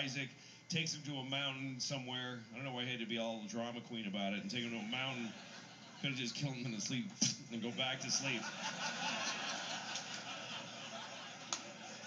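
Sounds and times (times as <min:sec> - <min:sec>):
audience laughing: 0:04.8 - 0:06.7, 0:07.6 - 0:12.0.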